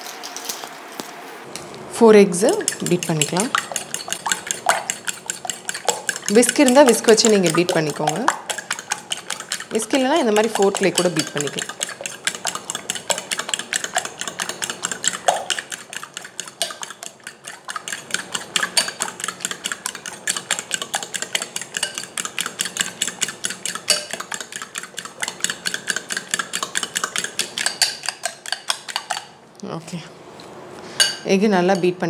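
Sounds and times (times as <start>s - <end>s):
fork clicking on glass bowl: 2.5s - 29.3s.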